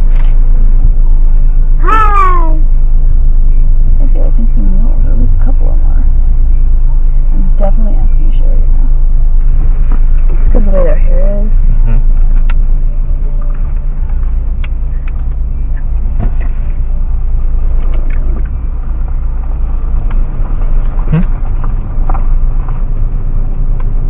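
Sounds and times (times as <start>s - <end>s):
car engine low rumble: 0.0s - 24.0s.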